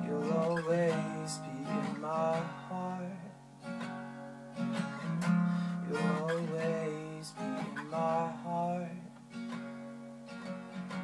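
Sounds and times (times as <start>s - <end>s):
man singing: 0.0s - 3.4s, 5.8s - 9.1s
acoustic guitar strumming: 0.0s - 11.0s.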